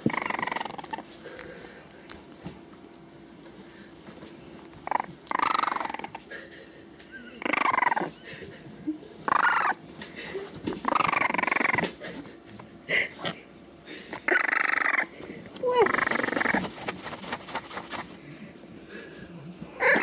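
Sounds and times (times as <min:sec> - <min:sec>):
puppy squeaks: 0:00.0 - 0:01.0, 0:07.2 - 0:08.2, 0:09.3 - 0:09.8, 0:10.8 - 0:12.0, 0:14.3 - 0:16.7
puppy whining cries: 0:00.0 - 0:01.0, 0:04.8 - 0:06.2, 0:07.1 - 0:08.4, 0:09.2 - 0:09.8, 0:10.8 - 0:12.0, 0:14.2 - 0:16.7, 0:19.7 - 0:20.0.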